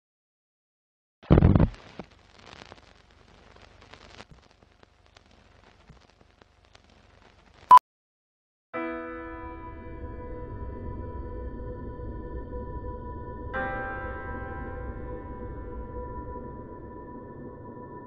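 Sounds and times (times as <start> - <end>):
film crackle and scratches: 1.2 - 7.7.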